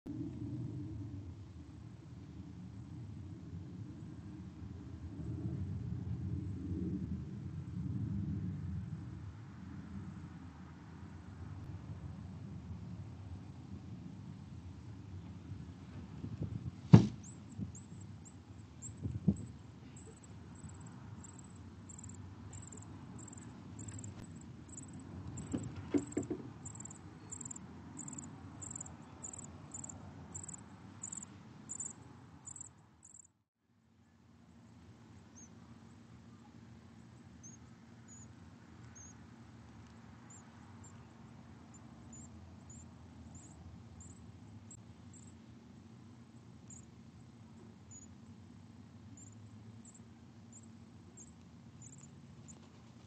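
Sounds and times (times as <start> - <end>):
nestlings peeping: 17.2 - 31.9, 32.5 - 33.2.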